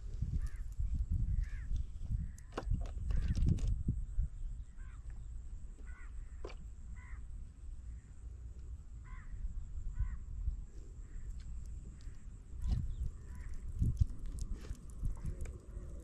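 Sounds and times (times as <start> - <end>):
low steady rumble: 0.0 - 16.0
crow cawing: 5.8 - 6.3, 7.0 - 7.2, 9.0 - 9.4, 10.0 - 10.2.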